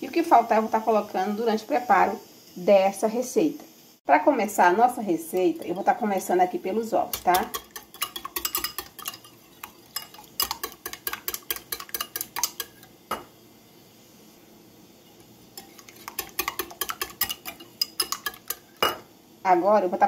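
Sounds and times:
whisk clicking against glass bowl: 7.1 - 12.9, 15.6 - 19.0.

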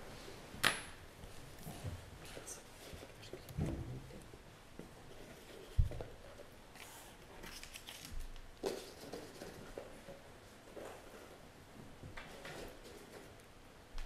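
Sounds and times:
paper rustling: 6.8 - 9.8.

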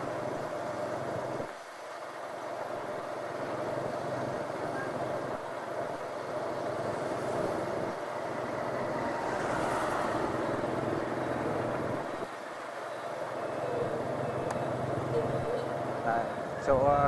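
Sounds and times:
road noise: 0.0 - 17.0
traffic: 0.0 - 17.0.

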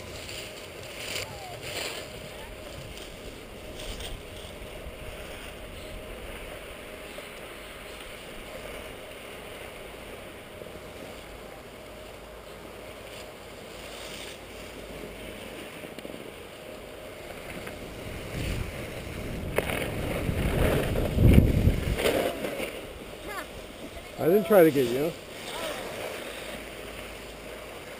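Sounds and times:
skis sliding on packed snow: 0.0 - 27.9
low rumbles: 17.1 - 24.2
wind rushing over microphone: 17.7 - 25.0.

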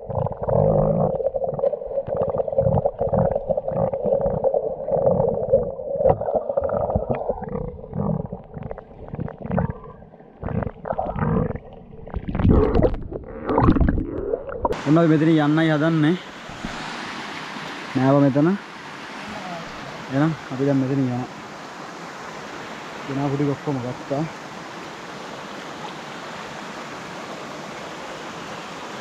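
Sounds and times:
breath bubbles rising: 0.0 - 14.8
dull underwater hum: 0.0 - 14.8
underwater bubbling and clicking: 0.0 - 14.8
water splashing: 0.0 - 18.0.

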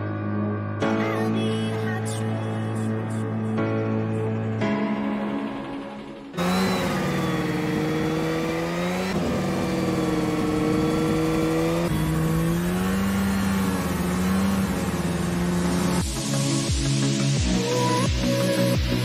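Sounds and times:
snowmobile engine running: 6.4 - 16.3.

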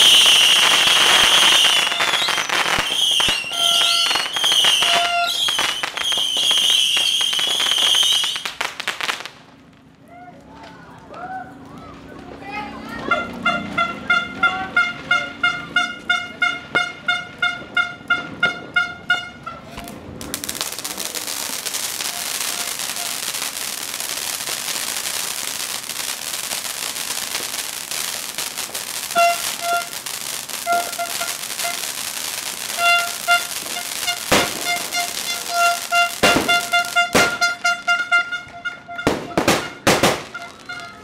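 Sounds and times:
firework fountain hissing and crackling: 0.0 - 9.9, 19.7 - 41.0
firework bang: 19.7 - 41.0.

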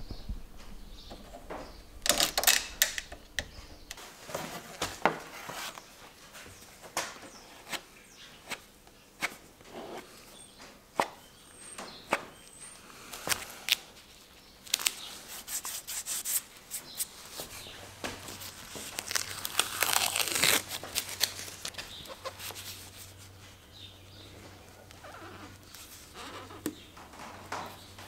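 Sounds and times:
masking tape clicks and crinkles: 0.6 - 7.4, 13.1 - 15.8, 16.8 - 23.2
tape tearing: 2.0 - 3.2, 14.6 - 17.1, 18.0 - 23.2.

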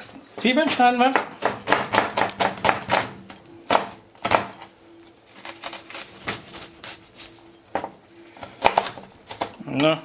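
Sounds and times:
knife chopping on cutting board: 0.7 - 4.6.

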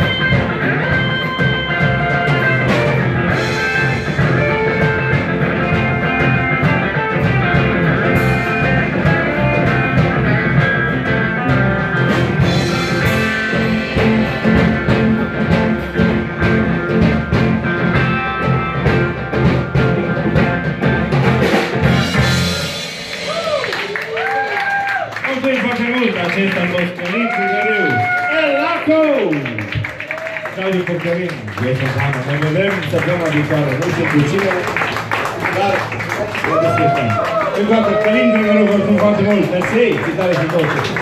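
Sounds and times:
lead guitar sustained notes: 0.0 - 23.6
rock band playing: 0.0 - 41.0.

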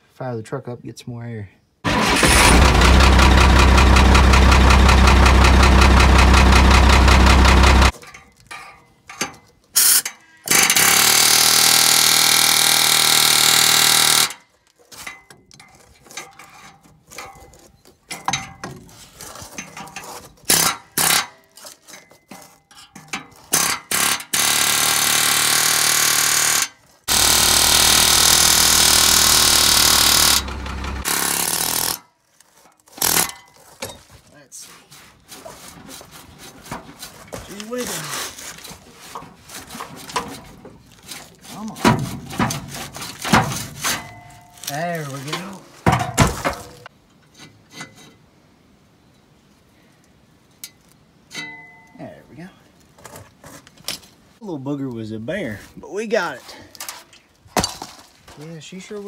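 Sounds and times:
air hammer chiseling metal: 9.8 - 14.4, 23.5 - 32.0.

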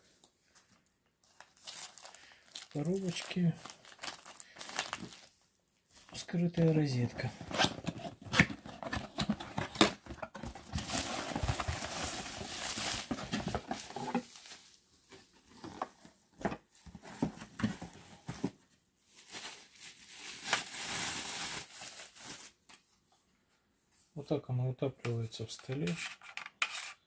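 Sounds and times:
bubble wrap crinkling: 1.2 - 5.4, 7.2 - 14.8, 19.0 - 22.7
cardboard rustling: 7.0 - 18.7.

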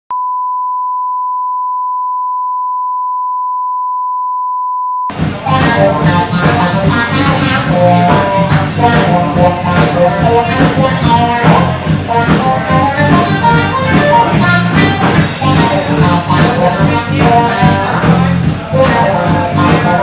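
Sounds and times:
music with steady beat: 5.1 - 20.0.

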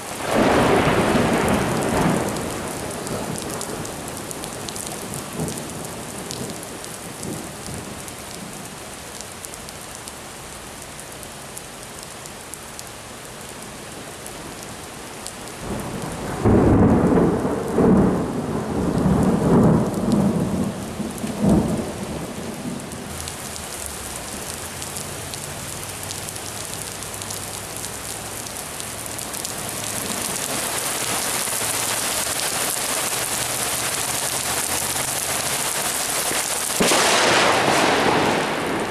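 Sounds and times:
heavy rain hissing: 0.0 - 9.7, 14.4 - 38.9
rolling thunder: 0.2 - 6.6, 15.6 - 22.9, 36.8 - 38.9.

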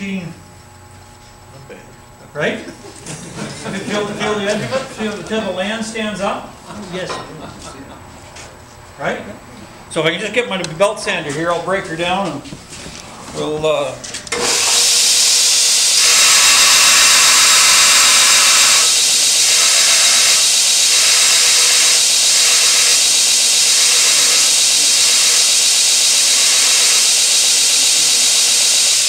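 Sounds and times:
belt sander running: 12.8 - 29.0
steel bit grinding on belt: 14.4 - 29.0.

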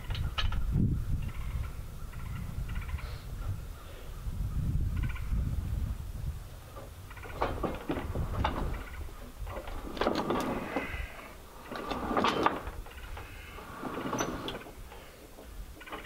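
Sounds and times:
wood and metal squeaking and creaking: 4.6 - 5.5, 6.7 - 16.0.

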